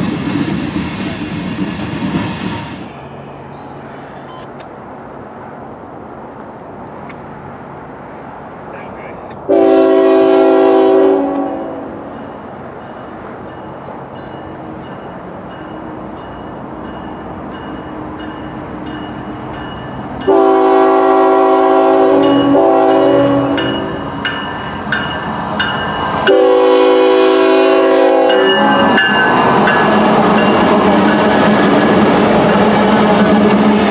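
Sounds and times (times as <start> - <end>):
train rumble: 0.0 - 33.9
locomotive air horn blasts: 9.5 - 12.1, 20.3 - 23.7, 26.2 - 29.0.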